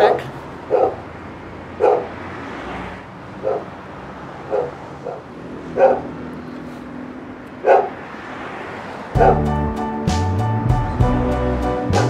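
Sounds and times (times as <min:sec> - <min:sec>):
dog barking: 0:00.0 - 0:01.1, 0:01.8 - 0:02.2, 0:03.4 - 0:03.8, 0:04.4 - 0:06.2, 0:07.6 - 0:08.0, 0:09.2 - 0:09.5.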